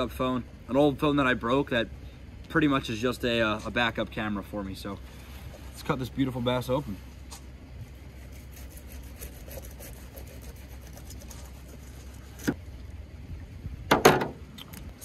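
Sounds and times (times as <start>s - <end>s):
steady low rumble: 0.0s - 15.0s
knife slicing and scraping fish: 8.0s - 12.6s
thump: 13.9s - 14.4s.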